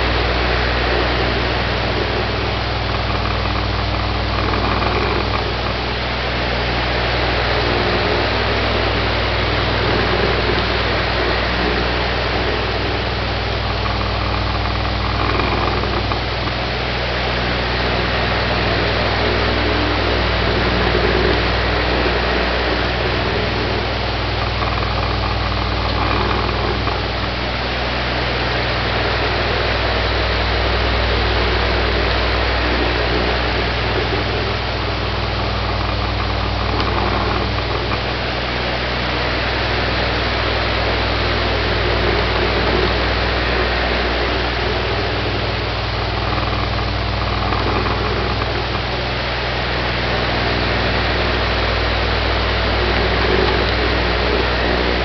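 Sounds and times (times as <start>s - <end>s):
electric fan running: 0.0s - 55.0s.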